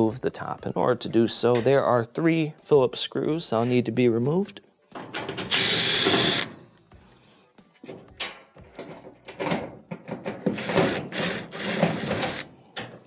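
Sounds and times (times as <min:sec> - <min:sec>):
cordless drill motor running: 0:05.5 - 0:06.5, 0:10.5 - 0:12.5.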